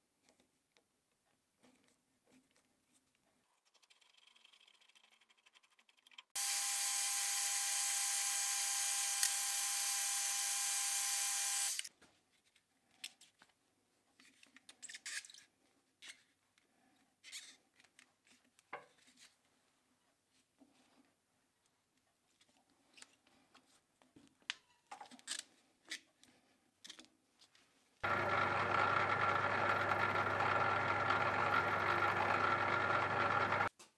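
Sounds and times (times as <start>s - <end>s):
power tool whirring: 6.4s - 11.9s, 28.0s - 33.7s.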